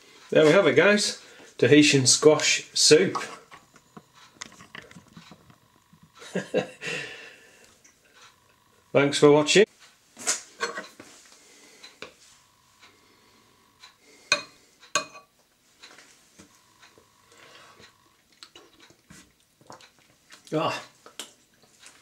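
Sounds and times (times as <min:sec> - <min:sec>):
metal spoon clinking ceramic bowl: 0:14.3 - 0:15.3.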